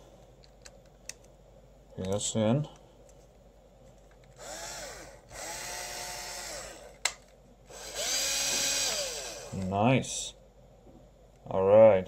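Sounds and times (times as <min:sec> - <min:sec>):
cordless drill motor whine: 0:04.4 - 0:07.0, 0:07.7 - 0:09.6.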